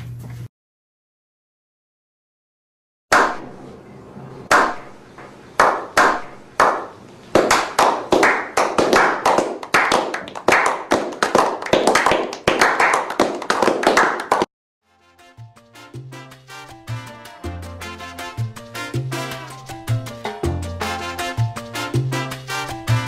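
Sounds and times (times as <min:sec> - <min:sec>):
hands clapping: 0:05.6 - 0:14.5.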